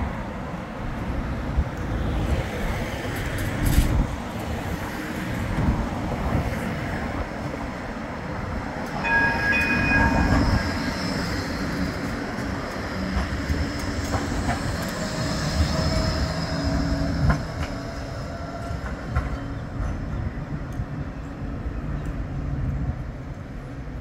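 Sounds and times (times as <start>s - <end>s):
tram wheels and motors rumbling: 0.0s - 24.0s
high warning tone: 9.0s - 12.1s.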